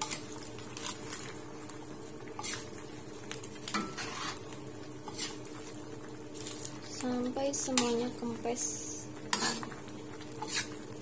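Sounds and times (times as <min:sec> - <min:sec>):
faint sizzle: 0:00.0 - 0:11.0
metal spatula scraping a wok: 0:02.4 - 0:02.7, 0:03.7 - 0:05.4, 0:09.3 - 0:09.7, 0:10.4 - 0:10.8.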